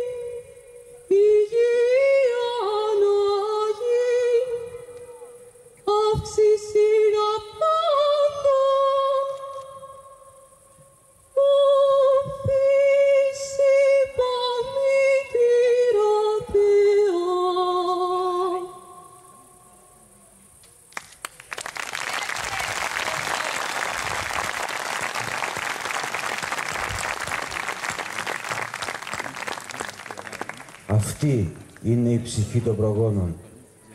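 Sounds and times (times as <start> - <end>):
woman singing: 0.0 - 5.1, 5.8 - 10.1, 11.4 - 19.0
audience applause: 20.9 - 31.4.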